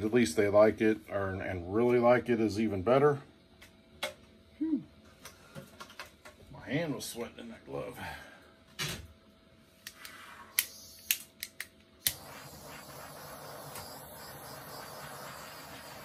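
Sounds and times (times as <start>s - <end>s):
torch igniter clicks: 9.8s - 16.0s
torch flame hissing: 9.9s - 16.0s.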